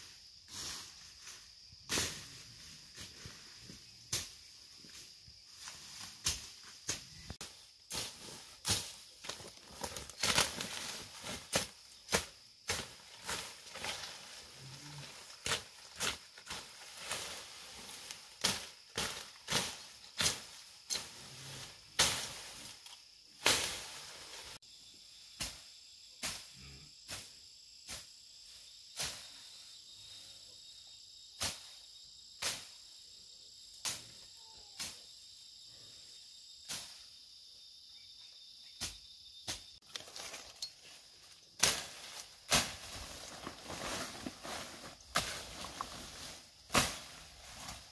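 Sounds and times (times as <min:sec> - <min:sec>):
hand tool chopping weeds: 0:06.2 - 0:14.1, 0:41.6 - 0:47.9
high-pitched insect buzz: 0:24.5 - 0:29.0.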